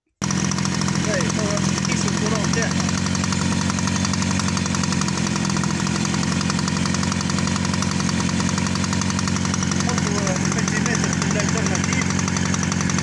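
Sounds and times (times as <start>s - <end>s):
small engine idling: 0.2s - 13.0s.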